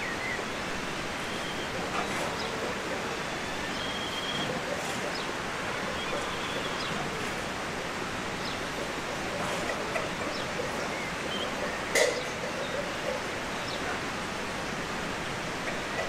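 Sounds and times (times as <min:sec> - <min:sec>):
steady rushing background noise: 0:00.0 - 0:16.0
small birds chirping: 0:03.5 - 0:07.4.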